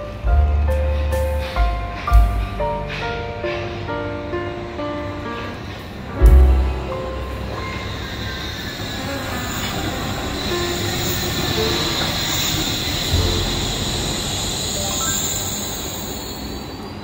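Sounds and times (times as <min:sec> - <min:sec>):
high whine: 0:00.0 - 0:16.8
suspended train wheels rumbling: 0:00.0 - 0:17.0
heavy low thump: 0:00.2 - 0:03.9, 0:06.1 - 0:07.6.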